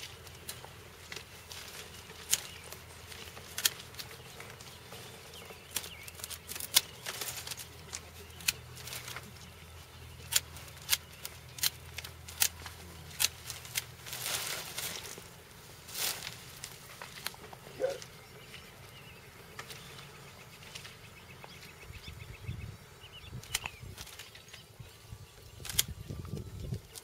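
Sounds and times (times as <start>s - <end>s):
pruning shears snipping: 0.0s - 18.1s, 23.4s - 24.6s, 25.6s - 27.0s.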